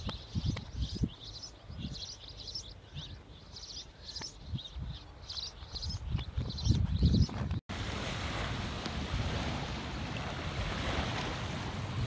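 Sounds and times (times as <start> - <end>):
small birds chirping: 0.0 - 7.6.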